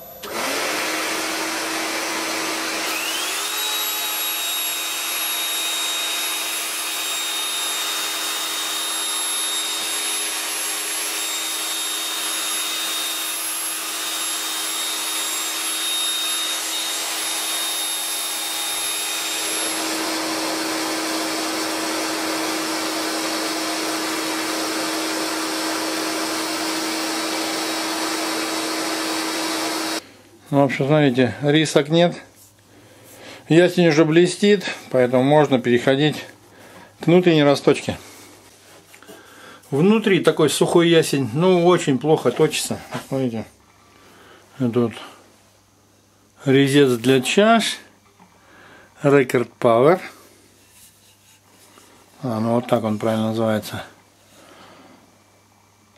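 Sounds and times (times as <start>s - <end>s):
electric polisher whining: 0.0s - 30.0s
dust extractor running: 0.1s - 30.1s.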